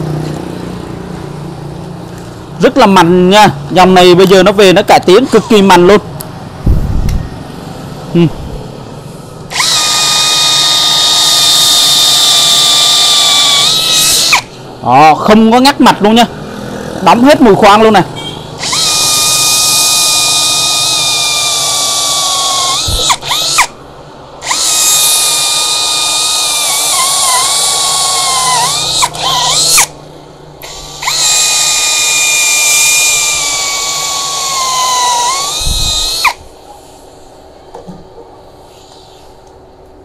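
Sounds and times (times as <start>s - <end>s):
cordless drill boring into wood: 5.0s - 5.9s, 9.5s - 14.5s, 18.6s - 23.8s, 24.4s - 30.0s, 30.6s - 36.4s.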